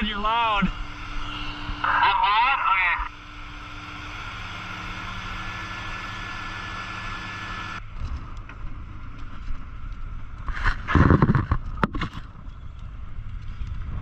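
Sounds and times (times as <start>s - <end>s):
faint steady hum: 0.0s - 14.0s
wind noise on microphone: 10.2s - 14.0s.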